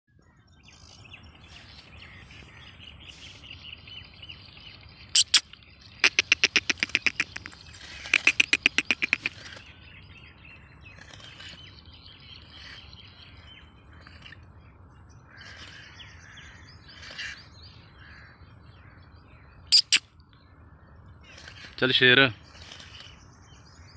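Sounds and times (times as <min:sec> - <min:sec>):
small birds chirping: 0:00.1 - 0:23.9
francolin calling: 0:05.1 - 0:09.6, 0:19.7 - 0:20.1.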